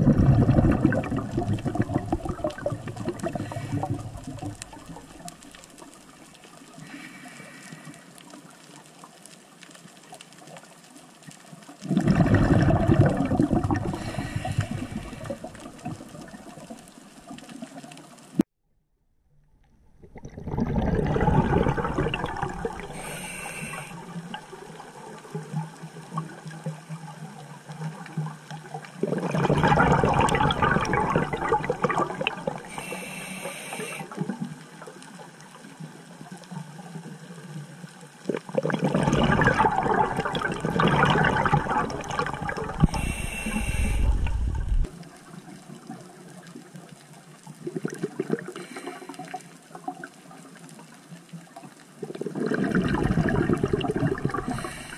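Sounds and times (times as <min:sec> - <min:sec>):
gurgling exhaled bubbles: 0:00.0 - 0:06.2, 0:11.8 - 0:17.4, 0:19.9 - 0:26.8, 0:27.8 - 0:33.2, 0:38.2 - 0:46.2, 0:47.6 - 0:50.1, 0:52.0 - 0:54.9
regulator hiss: 0:22.9 - 0:24.0, 0:32.7 - 0:34.0, 0:42.8 - 0:44.8.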